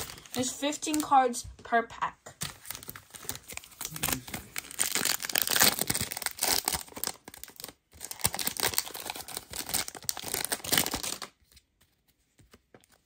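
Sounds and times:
wrapper tearing and crinkling: 0.0s - 1.1s, 2.4s - 11.4s.

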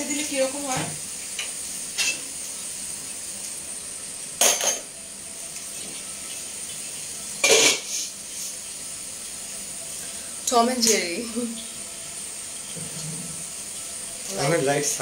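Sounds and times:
faint steady hiss: 0.0s - 15.0s
metal cookware clanking: 1.4s - 2.3s, 4.4s - 4.9s, 7.4s - 8.0s.

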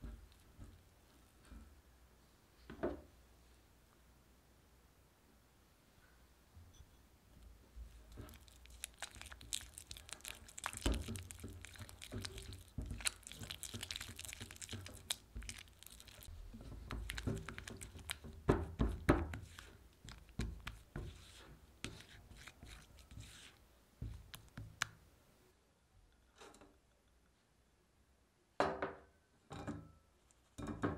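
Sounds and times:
spatula scraping mixing bowl: 20.8s - 23.6s.

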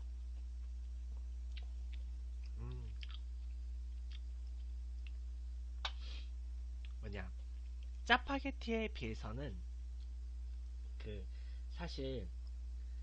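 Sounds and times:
man chewing noodles: 0.0s - 6.0s
electrical hum: 0.0s - 13.0s
wet mouth clicks: 1.5s - 3.3s, 5.8s - 6.2s.

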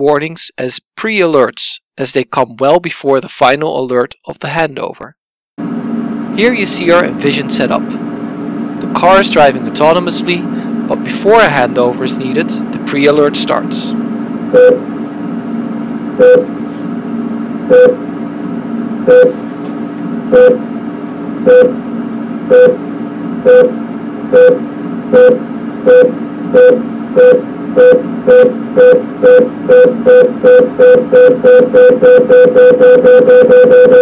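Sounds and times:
short electronic beeps: 14.6s - 14.8s, 16.2s - 16.5s, 17.7s - 18.0s, 19.1s - 19.4s, 20.3s - 20.6s, 21.5s - 21.8s, 22.5s - 22.8s, 23.5s - 23.7s, 24.4s - 34.0s.

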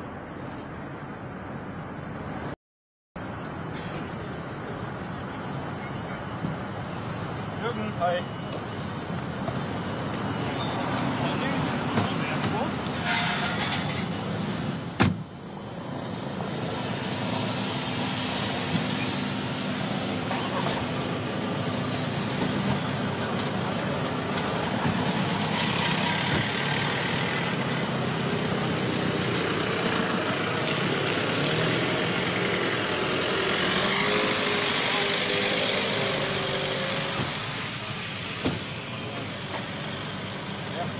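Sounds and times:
jet engines running: 13.6s - 40.8s.

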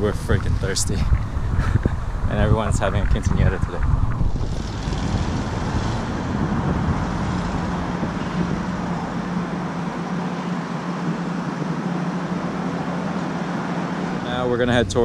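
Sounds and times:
constant low hum: 0.0s - 15.0s
passing car engines and tyres: 3.0s - 14.9s.

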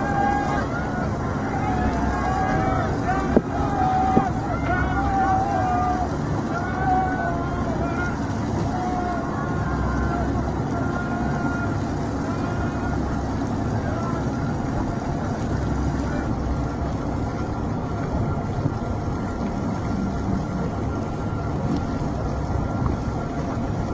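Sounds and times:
boat engine rumbling: 0.0s - 23.9s
water noise: 0.0s - 23.9s.

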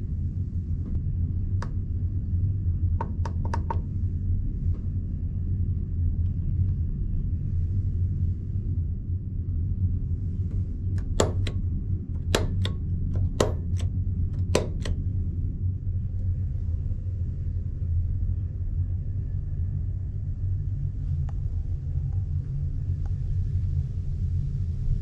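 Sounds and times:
low machinery hum: 0.0s - 25.0s
light switch clicking: 3.0s - 3.8s, 11.0s - 11.6s, 12.2s - 15.0s.

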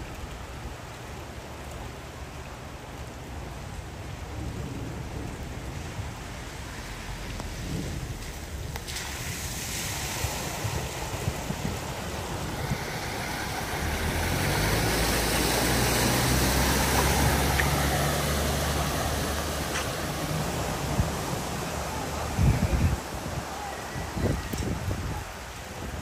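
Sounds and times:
tyres splashing through water: 0.0s - 26.0s
car engine hum: 12.2s - 22.2s.

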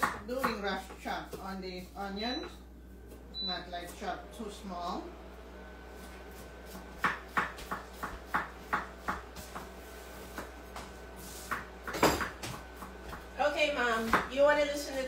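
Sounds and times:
knife chopping on cutting board: 6.7s - 9.7s, 10.3s - 13.2s.

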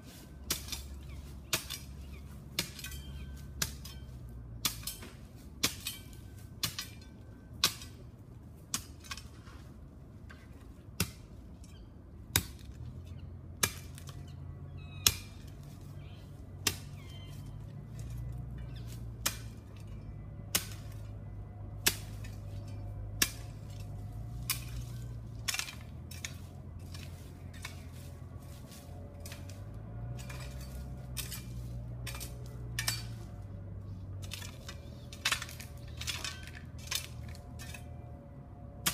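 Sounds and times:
low engine hum: 0.0s - 38.9s
metal tool clinking on stony ground: 0.2s - 8.1s, 22.0s - 28.2s, 29.0s - 38.1s.

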